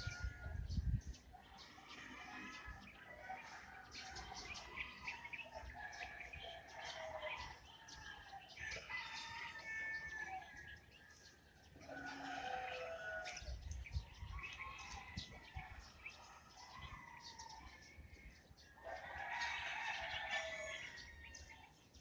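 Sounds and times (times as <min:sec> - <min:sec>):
small birds chirping and singing: 0:00.0 - 0:22.0
rooster crowing: 0:08.6 - 0:10.6, 0:11.9 - 0:13.5, 0:18.9 - 0:21.1.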